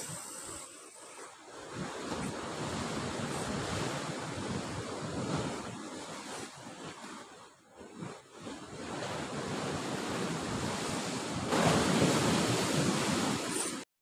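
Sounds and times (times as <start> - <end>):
wind buffeting microphone: 1.4 - 7.2, 7.9 - 13.8
surf breaking over rocks: 11.0 - 13.8.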